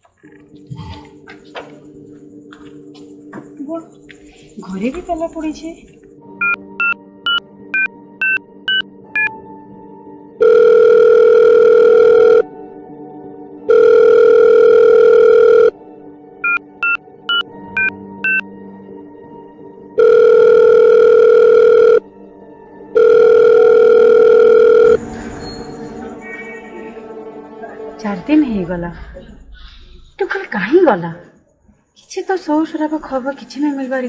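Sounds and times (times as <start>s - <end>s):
phone keypad beeps: 6.4s - 9.3s, 16.4s - 18.4s, 20.0s - 22.0s
phone ringing tone: 10.4s - 12.5s, 13.7s - 15.8s, 20.0s - 22.0s, 22.9s - 25.0s.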